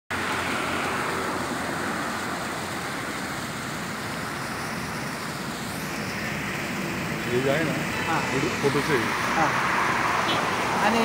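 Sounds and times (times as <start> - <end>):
fountain water splashing into pool: 0.1 - 5.9.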